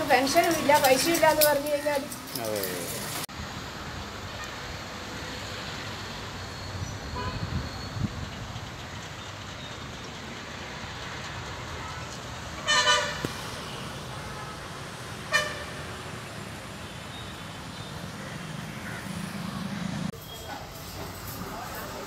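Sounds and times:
road traffic: 0.0s - 22.0s
vehicle horn honking: 7.1s - 7.6s, 12.6s - 13.2s, 15.3s - 15.8s.

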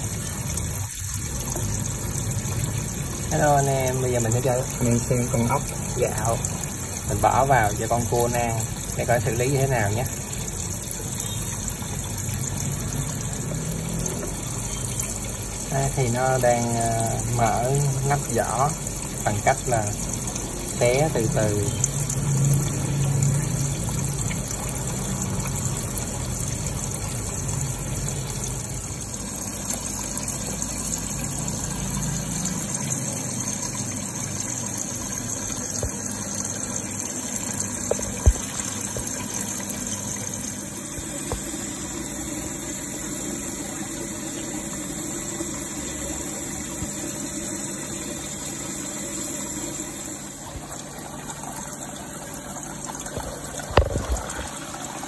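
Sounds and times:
water pouring into tank: 0.0s - 55.0s
water pump noise: 0.0s - 55.0s.

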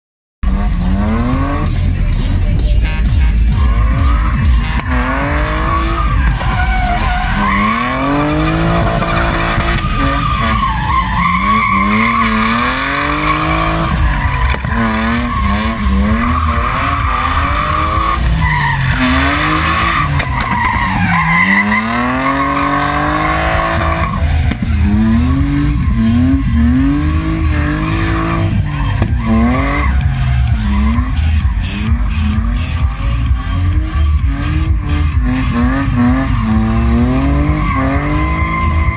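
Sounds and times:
car engine revving: 0.4s - 38.9s
tyres squealing on asphalt: 0.5s - 38.9s.

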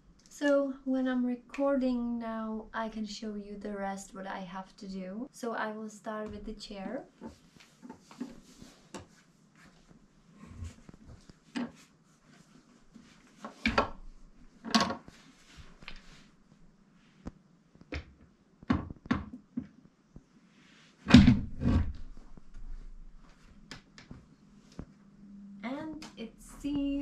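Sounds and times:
chair parts knocking and clunking: 13.4s - 14.0s, 14.6s - 15.1s, 17.9s - 19.8s.

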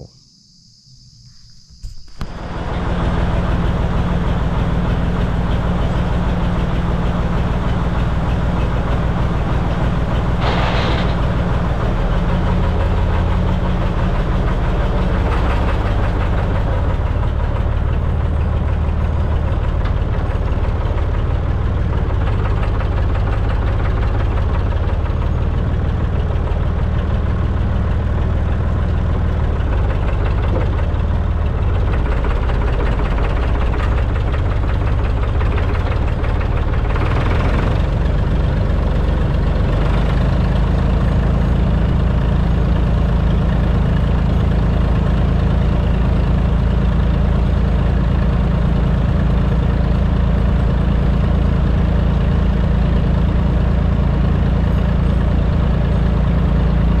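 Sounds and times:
tractor engine running: 1.8s - 57.0s.

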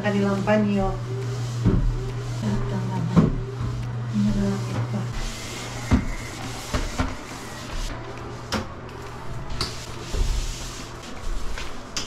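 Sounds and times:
steady low hum: 0.0s - 12.0s
mop pad swishing on tiles: 9.6s - 12.0s.

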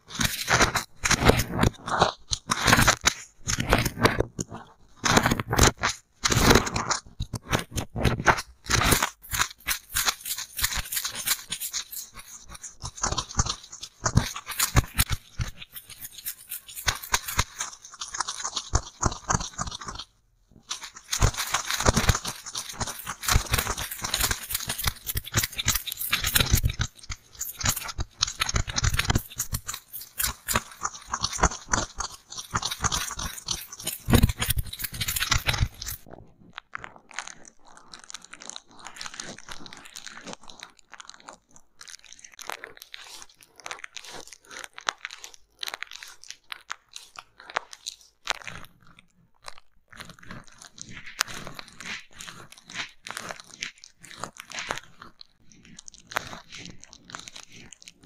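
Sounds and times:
cotton swab taps and scrapes: 0.1s - 36.1s
ear pick crunchy crackling: 0.1s - 36.1s.

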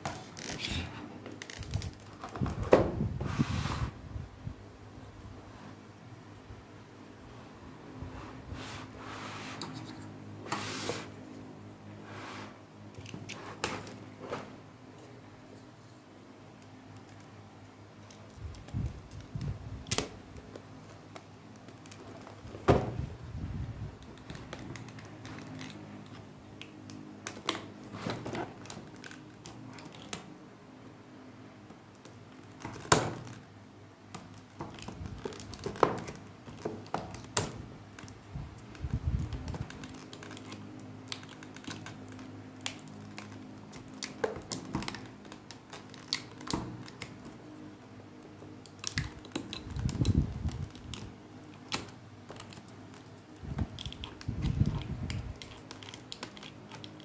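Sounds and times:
plastic packaging crackling: 0.0s - 2.6s, 24.0s - 30.3s, 31.9s - 57.0s.

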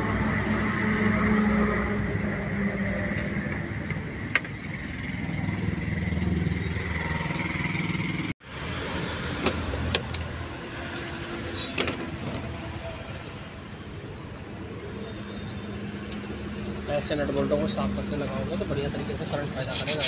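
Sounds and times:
engine rumble: 0.0s - 20.0s
high steady hiss: 8.4s - 20.0s.

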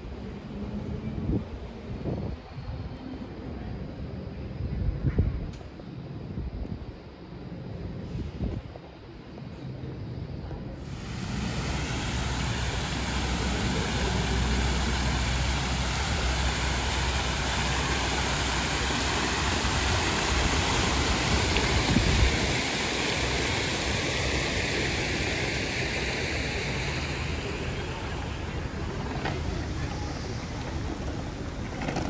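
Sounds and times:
fountain water splashing: 10.8s - 32.0s.

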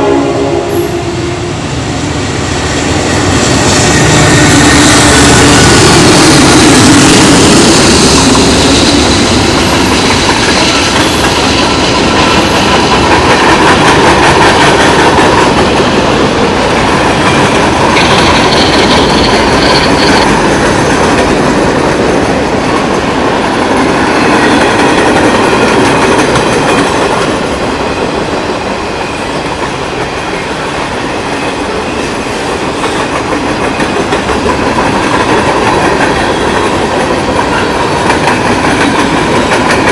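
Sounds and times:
diesel locomotive engine: 0.0s - 39.9s
train wheels rumbling on rails: 0.0s - 39.9s
train wheel squeal: 2.6s - 12.9s, 17.9s - 20.7s.

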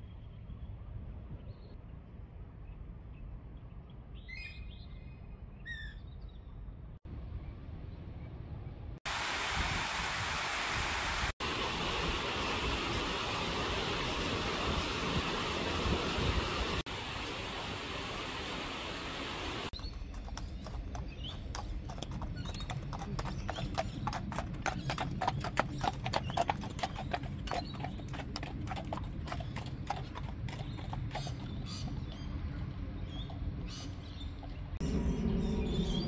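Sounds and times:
hooves clip-clopping on asphalt: 19.8s - 34.7s.

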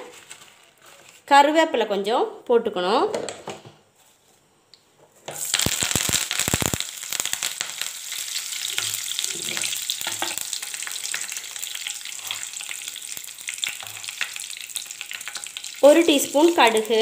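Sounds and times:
crackles and pops: 4.8s - 17.0s
leaves frying in oil: 5.3s - 17.0s.

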